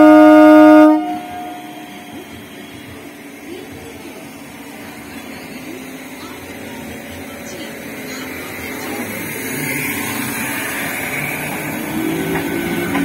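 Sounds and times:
train horn: 0:00.0 - 0:02.1
electric train hum with whines: 0:00.0 - 0:13.0.

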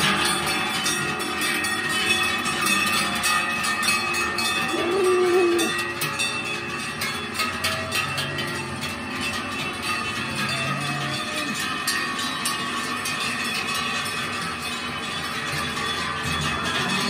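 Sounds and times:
cowbells clanging: 0:00.0 - 0:17.0
low wavering call: 0:04.7 - 0:05.8.

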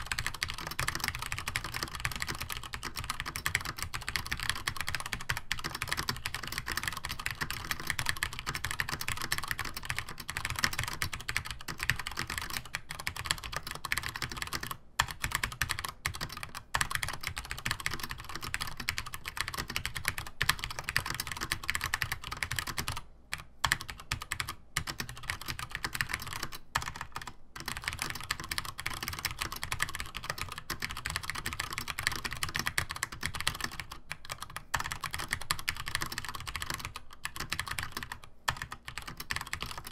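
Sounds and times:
mechanical keyboard typing: 0:00.0 - 0:39.9.

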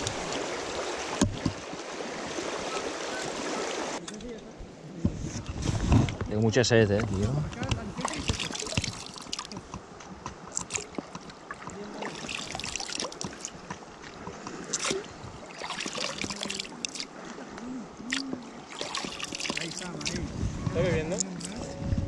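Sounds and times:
river water rushing: 0:00.0 - 0:04.0, 0:08.0 - 0:09.6, 0:10.4 - 0:20.2
water splashing: 0:00.0 - 0:04.0, 0:07.0 - 0:20.4.

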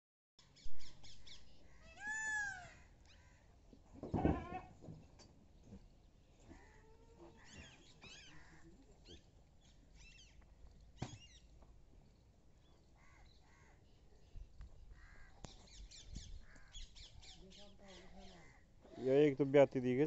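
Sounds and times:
faint animal calls: 0:01.6 - 0:03.5, 0:06.5 - 0:09.2.

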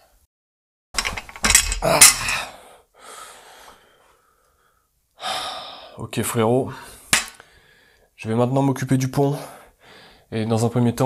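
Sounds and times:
metal part knocking and clattering: 0:01.0 - 0:02.4.

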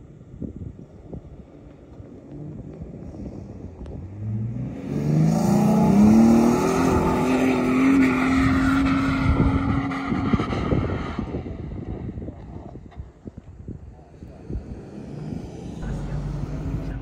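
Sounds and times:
off-road vehicle engine revving: 0:03.8 - 0:12.7, 0:14.0 - 0:17.0.

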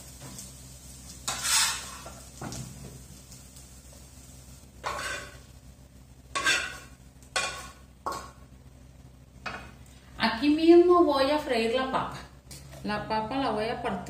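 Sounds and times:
spoon scraping a frying pan: 0:01.2 - 0:02.3, 0:04.8 - 0:05.4, 0:06.3 - 0:08.4.

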